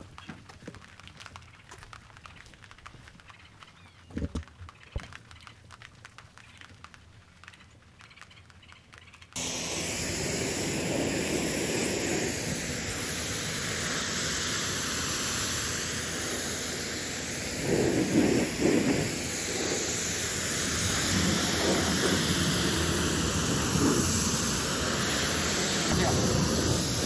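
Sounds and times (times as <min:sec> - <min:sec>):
pressure washer spraying: 0:09.4 - 0:27.0.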